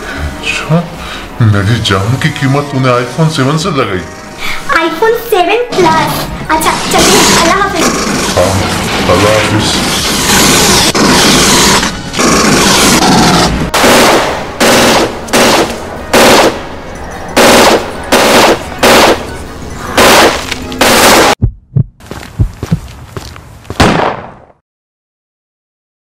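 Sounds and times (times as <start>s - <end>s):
gunshots: 9.9s - 16.6s, 17.4s - 19.3s, 20.0s - 21.4s, 23.8s - 24.6s
scattered thuds: 21.4s - 22.9s.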